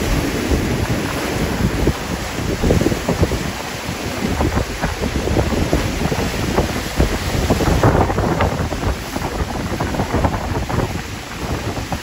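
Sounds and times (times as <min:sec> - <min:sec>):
surf crashing on rocky shore: 0:00.0 - 0:12.0
wind buffeting microphone: 0:00.0 - 0:12.0.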